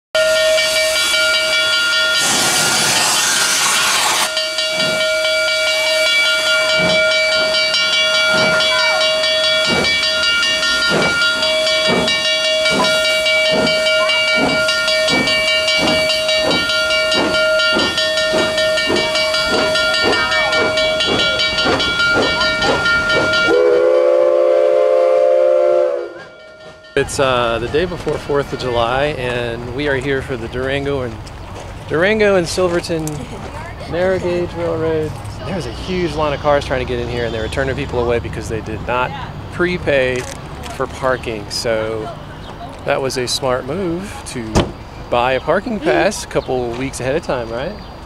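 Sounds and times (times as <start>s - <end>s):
steam locomotive exhaust chuffs: 0.2s - 31.2s
hissing steam blast: 0.3s - 5.0s
steam whistle low chord: 23.4s - 26.4s.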